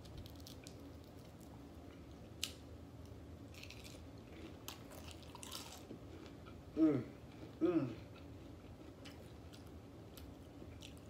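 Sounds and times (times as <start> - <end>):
person chewing quietly: 3.0 - 11.0.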